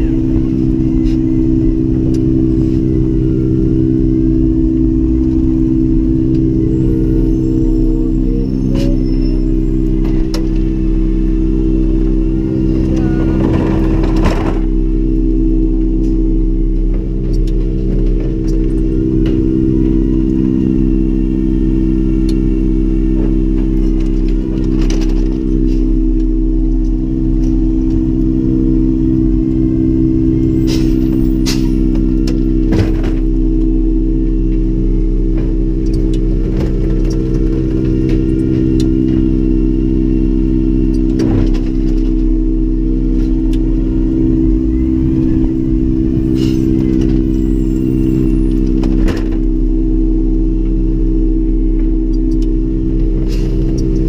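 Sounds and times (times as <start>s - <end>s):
truck engine idling: 0.0s - 54.0s
clunks and rattles of bins: 12.8s - 14.8s.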